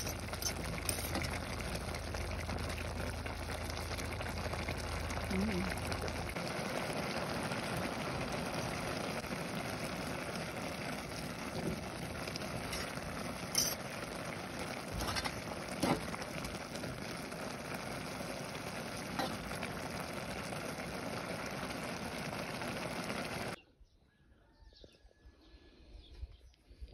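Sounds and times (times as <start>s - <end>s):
soup simmering with steady hiss: 0.0s - 23.6s
metal spoon clinking on pot: 13.5s - 13.8s.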